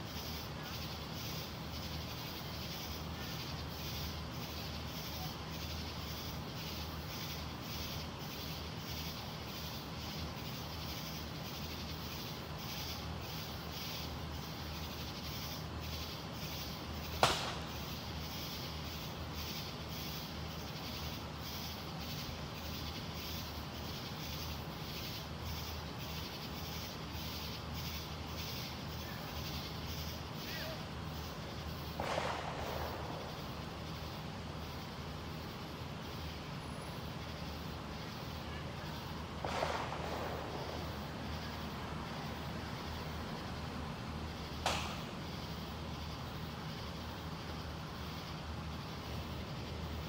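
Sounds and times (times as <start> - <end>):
insects chirping: 0.0 - 50.0
firework bang: 17.0 - 18.6, 31.7 - 34.2, 39.0 - 43.6, 44.5 - 45.6.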